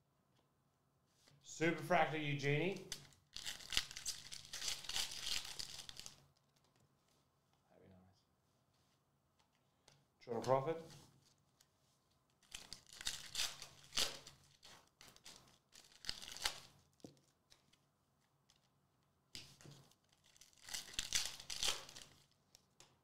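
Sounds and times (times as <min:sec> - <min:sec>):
foil wrapper tearing and crinkling: 0:02.9 - 0:06.6, 0:12.4 - 0:16.9, 0:19.6 - 0:22.7.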